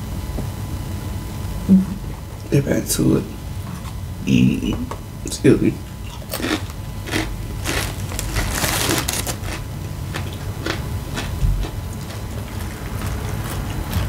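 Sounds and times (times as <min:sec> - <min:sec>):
chewing crunchy chips: 0:06.0 - 0:14.0.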